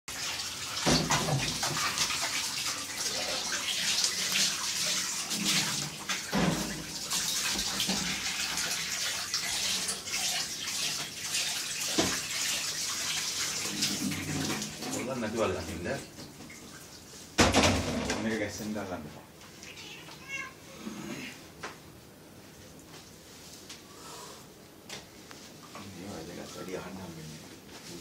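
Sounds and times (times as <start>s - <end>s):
rushing water-like noise: 0.1s - 16.0s.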